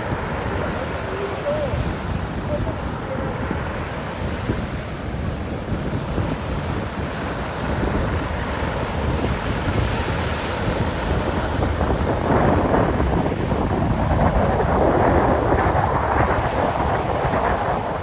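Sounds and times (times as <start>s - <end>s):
surf rushing: 0.0s - 18.0s
waves breaking at shoreline: 0.0s - 18.0s
wind buffeting microphone: 0.0s - 18.0s.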